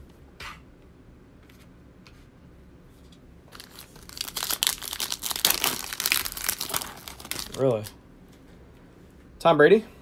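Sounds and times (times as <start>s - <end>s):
foil pack tearing and crinkling: 3.5s - 7.9s.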